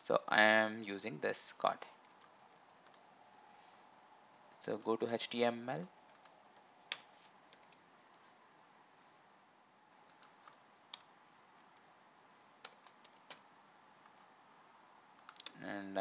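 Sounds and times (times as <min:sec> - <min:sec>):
low steady hiss: 0:00.0 - 0:16.0.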